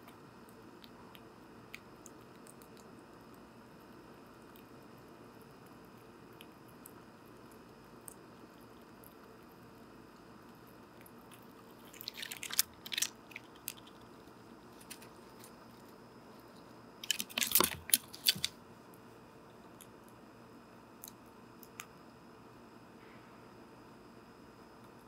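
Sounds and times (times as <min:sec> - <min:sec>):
squirrel crunching seeds: 0:00.0 - 0:18.6.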